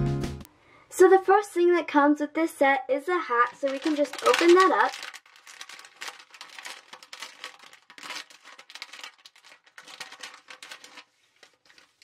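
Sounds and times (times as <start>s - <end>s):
plastic bag crinkling: 3.3s - 12.0s.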